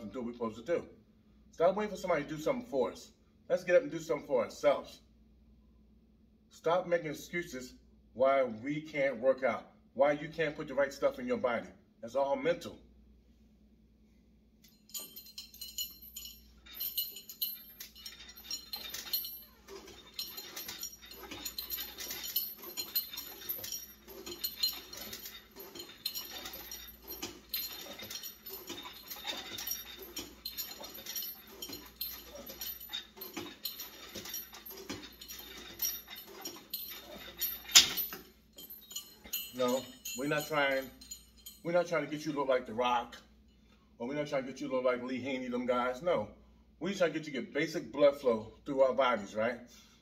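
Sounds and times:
weight plates and chain clinking: 14.6 - 42.4.

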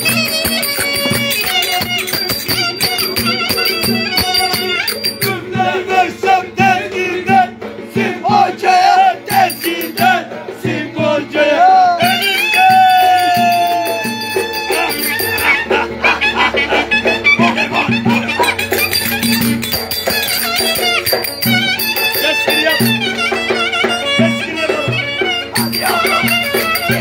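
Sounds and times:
rattling percussion: 0.0 - 27.0
strummed banjo: 0.0 - 27.0
man singing: 5.2 - 16.2, 25.6 - 27.0.

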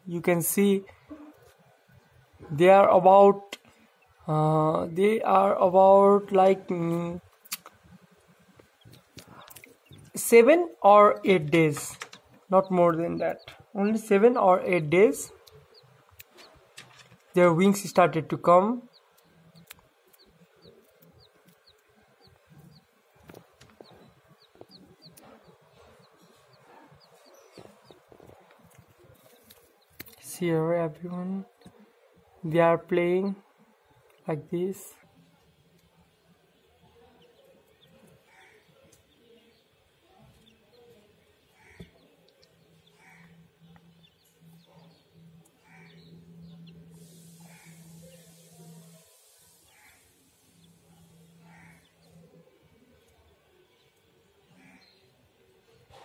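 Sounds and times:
chicks peeping: 5.0 - 17.1, 17.8 - 30.2, 35.5 - 52.4.

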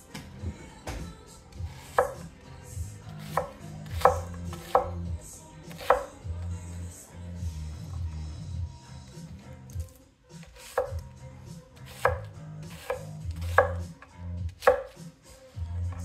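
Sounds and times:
knife chopping on wooden board: 1.8 - 2.3, 3.1 - 5.0, 5.7 - 6.1, 10.4 - 11.0, 11.8 - 15.0.

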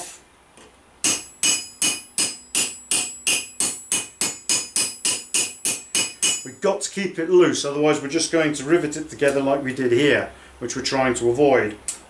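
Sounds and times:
hammer striking steel rivet: 1.0 - 6.6.

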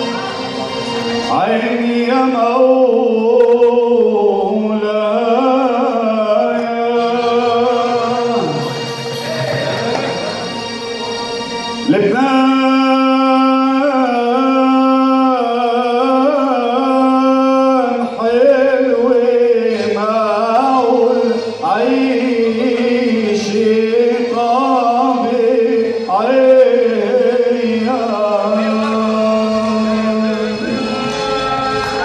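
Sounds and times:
man singing into a microphone: 1.2 - 10.2, 11.9 - 32.0
electronic keyboard drone: 6.4 - 17.8.

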